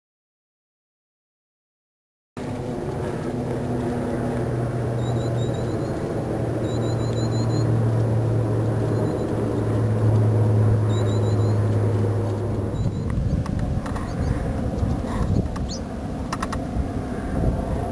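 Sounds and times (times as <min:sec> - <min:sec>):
steady low hum: 0:02.4 - 0:17.9
bird singing high notes: 0:04.9 - 0:06.0, 0:06.6 - 0:07.8, 0:08.8 - 0:09.4, 0:10.8 - 0:11.7.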